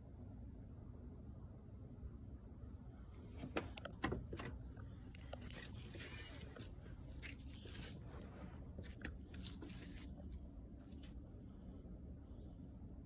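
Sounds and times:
phone handling crunching: 3.6 - 11.1.

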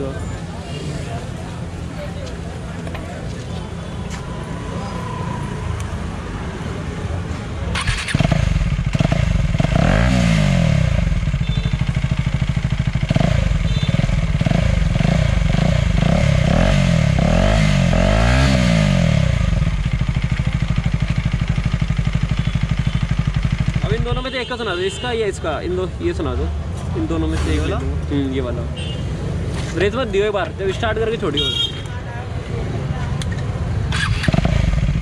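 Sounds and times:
motorcycle engine revving: 7.7 - 24.3, 33.7 - 35.0.

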